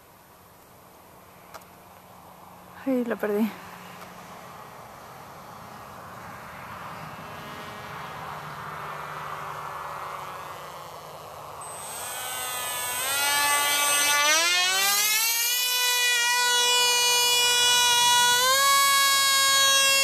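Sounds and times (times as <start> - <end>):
model plane motor whining: 6.9 - 20.0.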